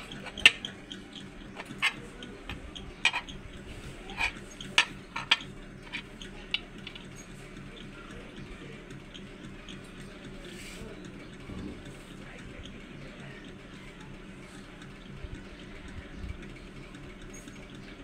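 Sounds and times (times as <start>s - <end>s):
coin clinking on tiled tabletop: 4.2s - 6.0s.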